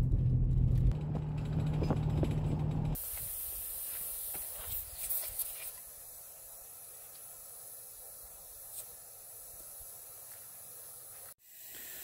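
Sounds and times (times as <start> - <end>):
air hissing from tyre valve: 3.0 - 12.0.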